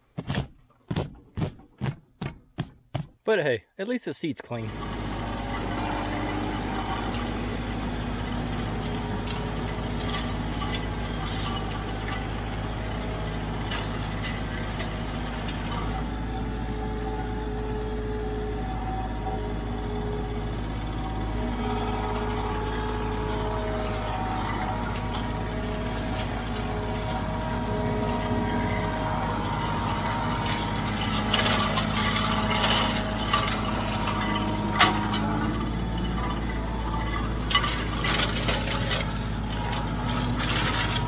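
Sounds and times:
tractor diesel engine running: 0:04.3 - 0:41.0.

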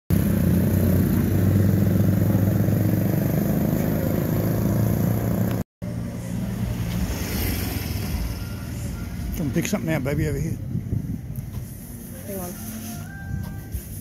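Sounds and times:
small motorcycle engine running: 0:00.1 - 0:05.6
street ambience: 0:00.1 - 0:14.0.

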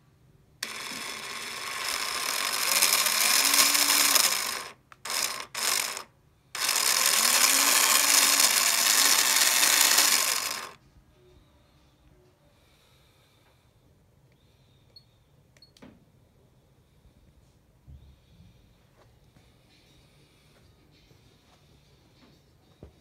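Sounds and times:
gear noise: 0:00.6 - 0:10.8
small electric motor whirring: 0:00.6 - 0:10.8.

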